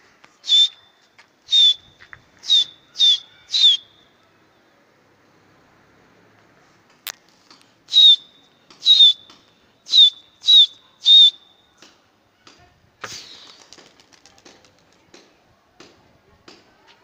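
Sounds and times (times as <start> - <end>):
person whistling sharp blasts: 0.4 - 0.8, 1.5 - 4.0, 7.9 - 11.4, 13.0 - 13.6.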